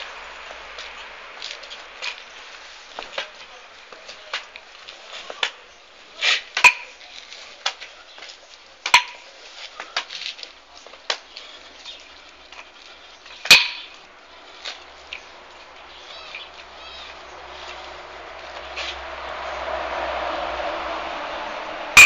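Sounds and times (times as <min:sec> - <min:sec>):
nunchaku sticks clacking: 0:13.4 - 0:14.0.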